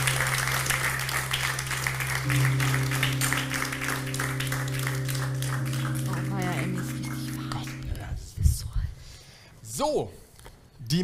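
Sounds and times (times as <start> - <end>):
applause: 0.0 - 8.0
intro music jingle: 0.0 - 8.1.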